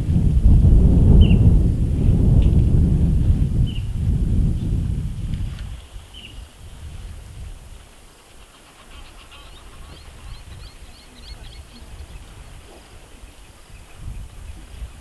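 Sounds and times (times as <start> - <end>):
wind rumble on microphone: 0.0 - 8.2, 8.8 - 15.0
bird chirping: 8.5 - 12.2.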